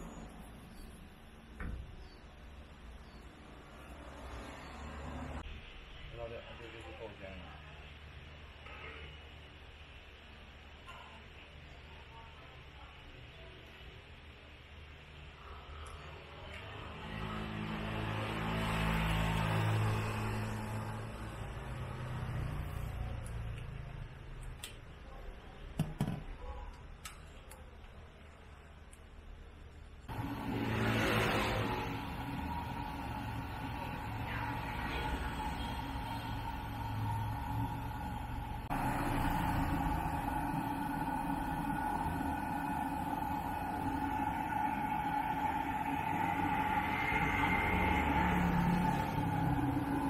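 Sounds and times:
low steady hum: 0:30.1 - 0:50.0.

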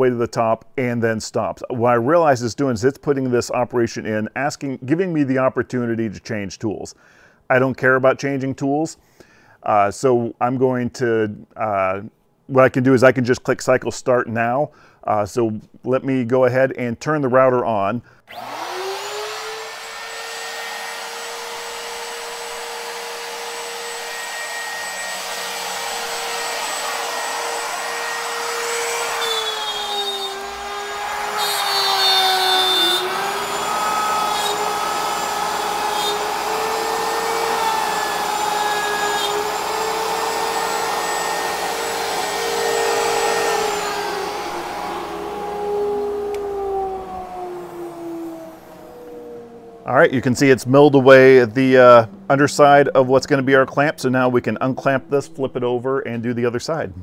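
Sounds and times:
router high whine: 0:18.3 - 0:55.6
router bit cutting wood: 0:18.3 - 0:56.2.

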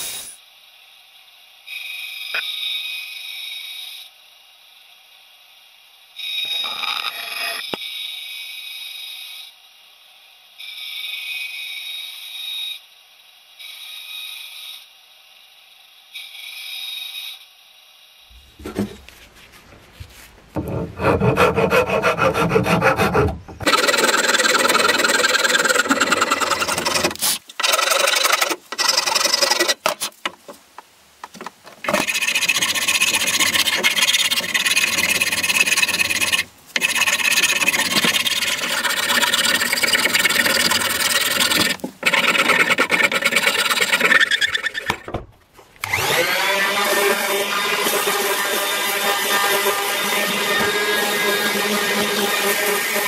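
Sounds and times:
wood rasp scraping: 0:18.4 - 0:30.2, 0:31.8 - 0:45.0, 0:45.9 - 0:53.0
band saw cutting wood: 0:20.6 - 0:30.0, 0:31.8 - 0:45.1, 0:45.8 - 0:53.0.

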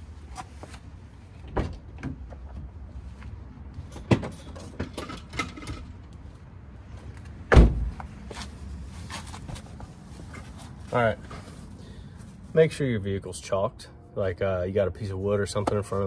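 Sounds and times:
car door shutting: 0:07.5 - 0:07.9.

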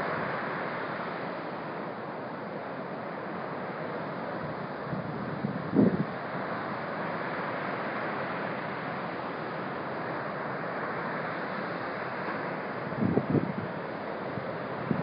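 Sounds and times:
ocean surf breaking on beach: 0:00.0 - 0:15.0
wind buffeting microphone: 0:13.0 - 0:13.7.

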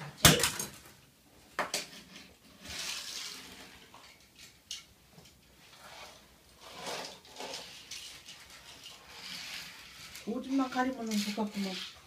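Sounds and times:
toy car wheels rolling on wood: 0:01.6 - 0:12.0
toy car clicking on wood: 0:05.7 - 0:12.0.

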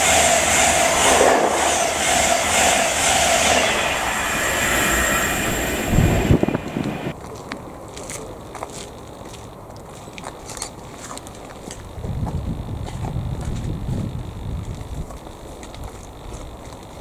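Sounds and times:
train passing at speed: 0:00.0 - 0:07.2.

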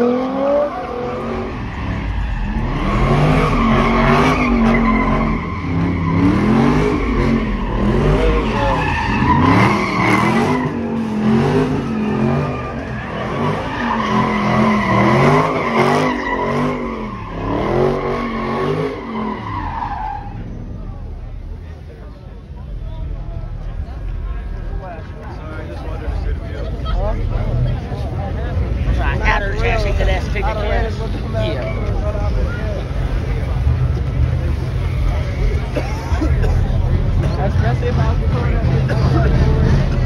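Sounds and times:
tires squealing: 0:00.0 - 0:22.0, 0:22.7 - 0:40.0
car engine revving: 0:00.0 - 0:40.0.

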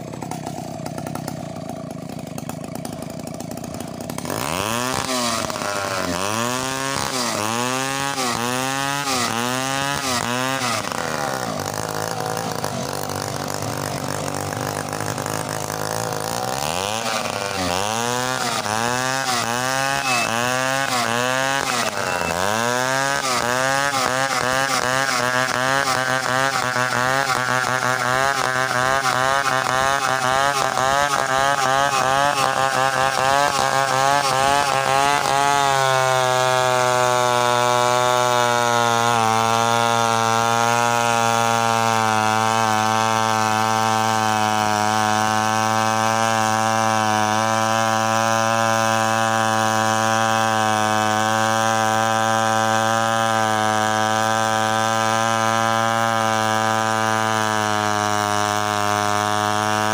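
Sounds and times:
chainsaw cutting through log: 0:00.0 - 0:59.9.

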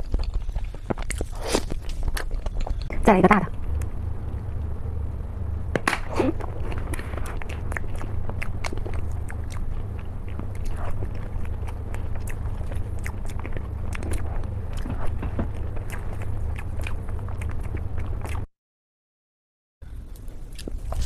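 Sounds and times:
chewing: 0:00.0 - 0:03.0, 0:06.4 - 0:18.5, 0:19.9 - 0:21.0
steady low hum: 0:00.0 - 0:18.5, 0:19.8 - 0:21.0.

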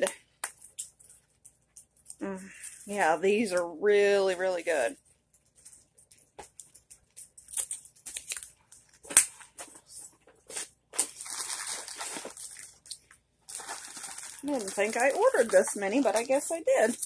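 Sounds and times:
packaging crinkling and rustling: 0:05.4 - 0:17.0.

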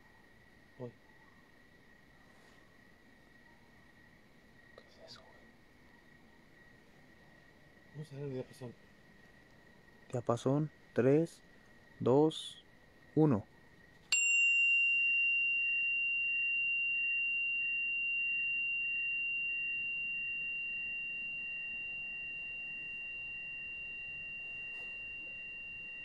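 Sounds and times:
tuning fork ringing: 0:14.1 - 0:26.0.

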